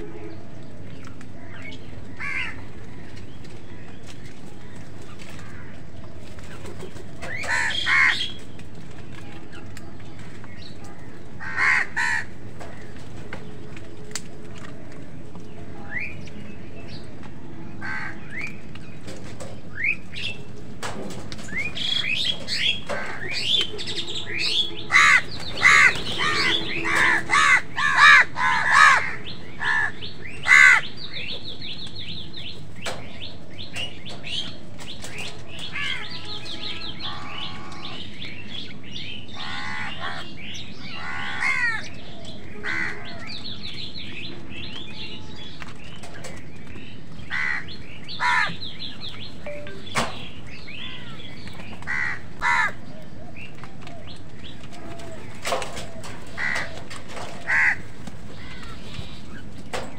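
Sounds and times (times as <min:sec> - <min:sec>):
crows cawing: 0:02.1 - 0:03.1, 0:04.6 - 0:06.0, 0:07.2 - 0:08.4, 0:10.9 - 0:13.0, 0:17.8 - 0:18.5, 0:22.6 - 0:31.3, 0:35.7 - 0:38.1, 0:39.3 - 0:41.9, 0:42.5 - 0:43.3, 0:47.2 - 0:48.7, 0:50.8 - 0:53.0, 0:54.8 - 0:59.2.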